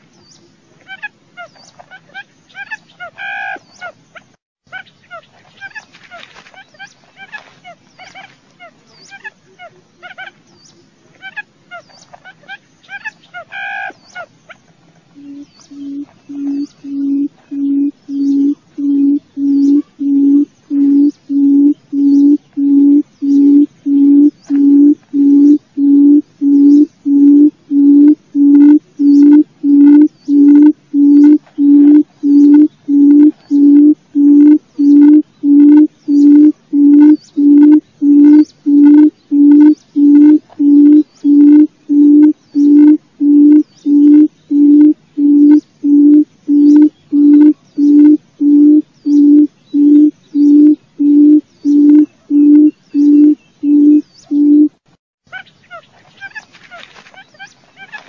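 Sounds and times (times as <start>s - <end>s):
bird booming low hoots: 15.2s - 54.8s.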